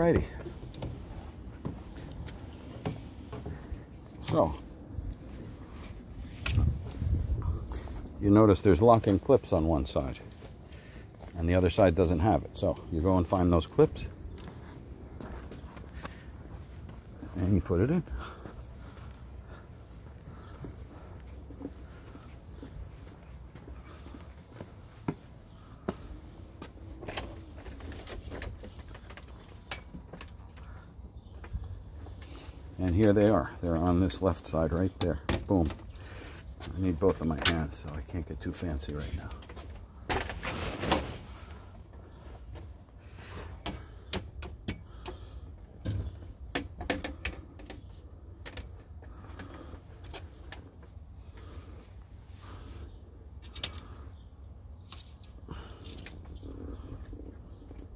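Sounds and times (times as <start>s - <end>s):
steady low rumble: 0.0s - 28.5s.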